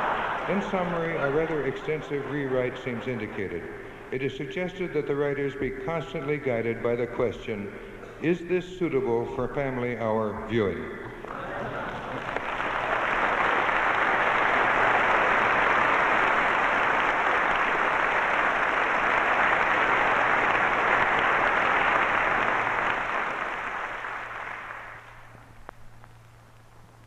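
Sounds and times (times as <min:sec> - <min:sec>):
audience applause: 0:00.0 - 0:04.0, 0:11.2 - 0:25.5.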